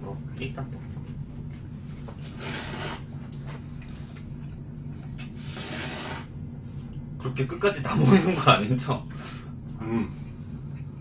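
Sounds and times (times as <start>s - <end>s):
low steady hum: 0.0s - 11.0s
noodles slurped: 2.2s - 3.1s, 5.3s - 6.3s.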